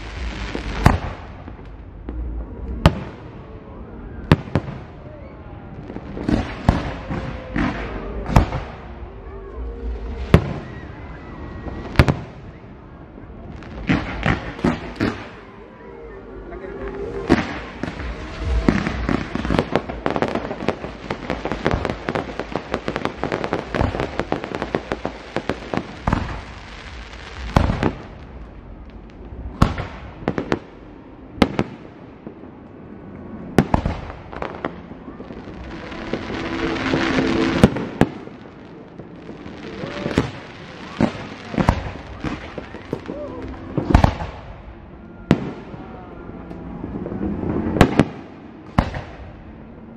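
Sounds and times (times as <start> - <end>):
fireworks crackling bangs: 0.0 - 15.6, 16.8 - 49.9.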